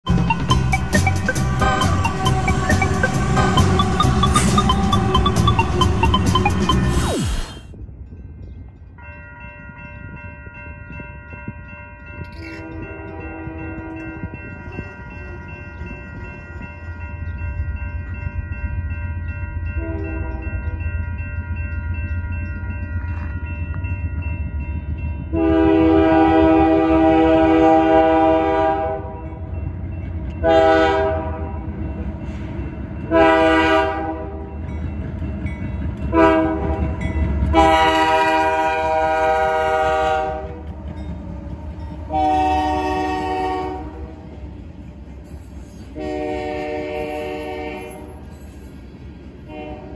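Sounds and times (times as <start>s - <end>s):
crossing bell ringing: 0.0s - 7.0s, 7.8s - 49.9s
train rumble: 0.0s - 49.9s
locomotives rumbling past: 0.1s - 6.9s
locomotive air horn blasts: 12.6s - 14.2s, 19.8s - 20.4s, 25.3s - 29.2s, 30.4s - 31.6s, 33.1s - 34.4s, 36.1s - 36.8s, 37.5s - 40.6s, 42.1s - 44.2s, 46.0s - 48.2s, 49.5s - 49.9s.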